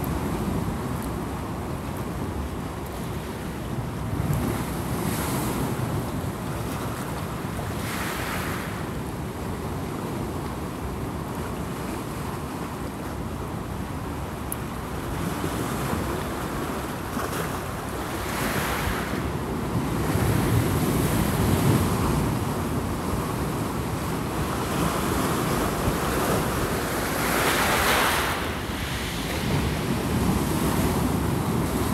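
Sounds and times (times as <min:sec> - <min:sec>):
wind rumble on microphone: 0:00.0 - 0:31.9
surf crashing on rocks: 0:17.6 - 0:31.9.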